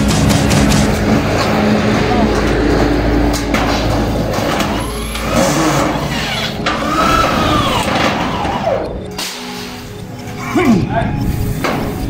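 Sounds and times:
steady background noise: 0.0s - 12.0s
motor revving: 4.8s - 9.0s.

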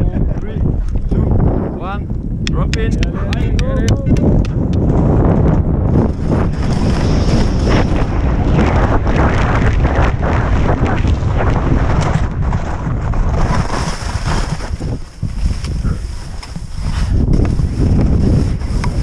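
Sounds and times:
wind buffeting microphone: 0.0s - 19.0s
skis scraping over hard snow: 5.9s - 19.0s.

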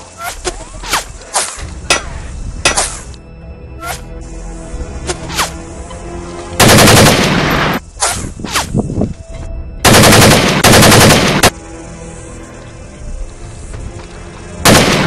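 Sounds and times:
automatic gunfire: 6.6s - 7.8s, 9.9s - 11.5s, 14.7s - 15.0s.

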